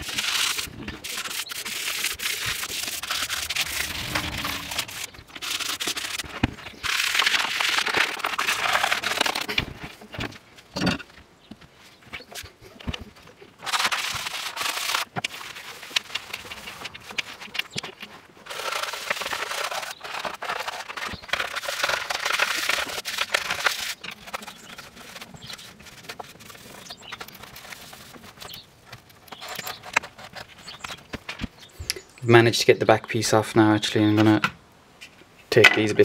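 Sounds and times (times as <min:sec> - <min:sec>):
cloth scrubbing plastic helmet: 0:00.0 - 0:09.7, 0:13.6 - 0:30.9.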